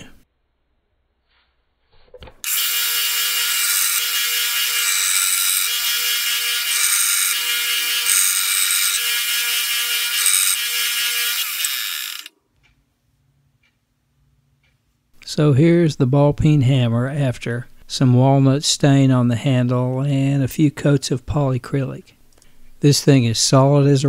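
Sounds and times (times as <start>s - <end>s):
belt sander motor whine: 2.4s - 12.3s
sanding belt hissing: 2.5s - 10.6s.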